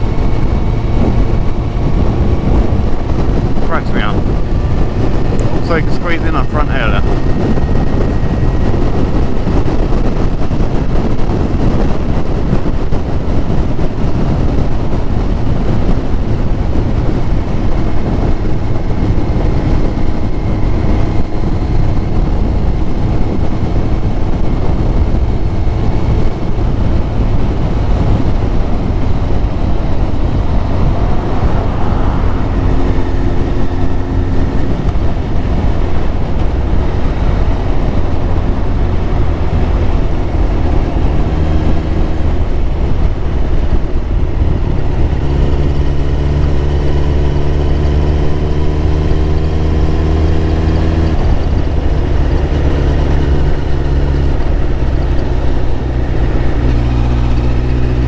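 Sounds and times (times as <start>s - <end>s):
motorcycle engine running: 0.0s - 58.0s
wind rumble on microphone: 0.0s - 58.0s.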